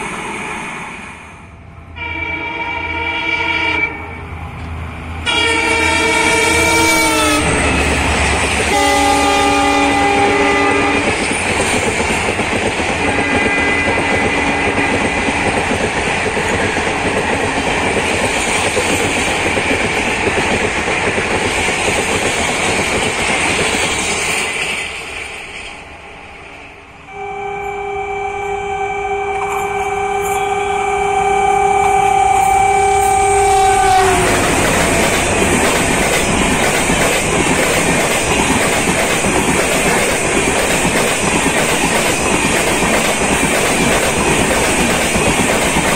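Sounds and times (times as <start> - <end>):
locomotive horn blasts: 2.0 - 4.3, 5.2 - 8.0, 8.7 - 11.1, 13.0 - 15.1, 27.1 - 35.5
train wheels clattering on rails: 6.3 - 25.9, 33.9 - 45.9.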